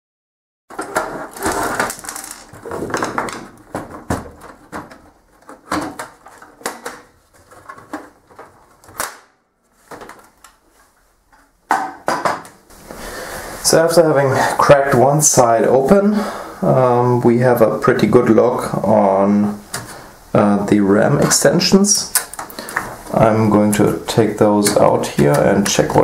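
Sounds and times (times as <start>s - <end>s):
plastic cover clicking and snapping: 1.4s - 9.3s.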